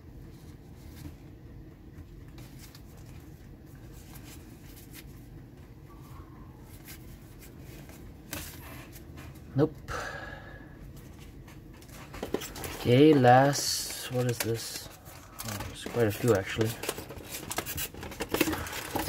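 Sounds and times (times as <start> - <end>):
steady low hum: 0.0 - 19.0
card stack rustling: 2.0 - 5.4, 6.0 - 9.5, 10.8 - 19.0
cards flipped through by hand: 11.9 - 19.0.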